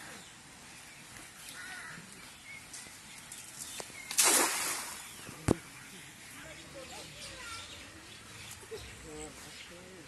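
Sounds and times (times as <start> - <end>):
net splashing into water: 4.1 - 5.2.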